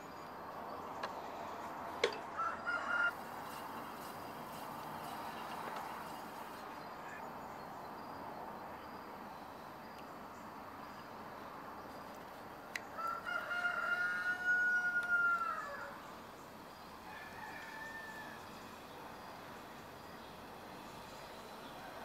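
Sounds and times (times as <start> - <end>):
steady low hiss: 0.0 - 22.0
rooster crowing: 2.3 - 3.3, 13.0 - 16.1, 17.0 - 18.6.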